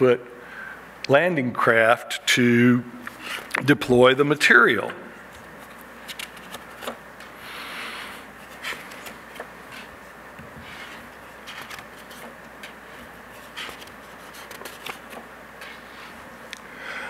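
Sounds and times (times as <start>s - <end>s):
small clicks and scrapes: 10.7s - 12.8s.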